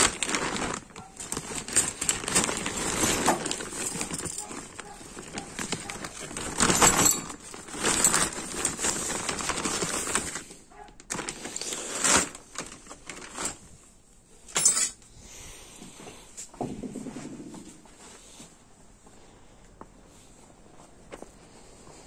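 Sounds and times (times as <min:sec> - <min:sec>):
plastic sheeting rustling: 0:00.0 - 0:13.9
small metal parts clinking: 0:06.5 - 0:08.4, 0:14.5 - 0:15.0.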